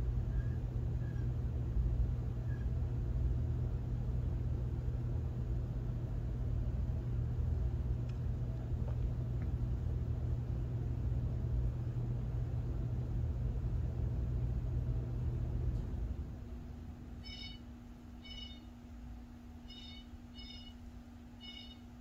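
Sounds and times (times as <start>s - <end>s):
hum: 0.0s - 22.0s.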